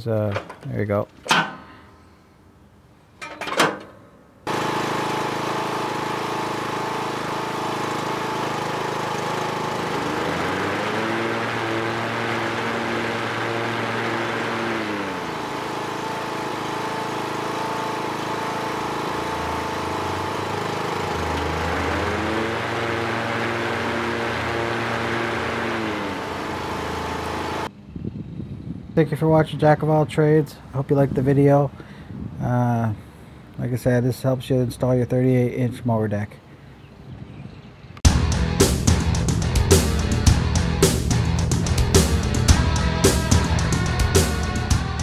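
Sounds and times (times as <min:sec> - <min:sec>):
lawn tractor engine running: 0:04.5 - 0:27.7, 0:38.2 - 0:45.0.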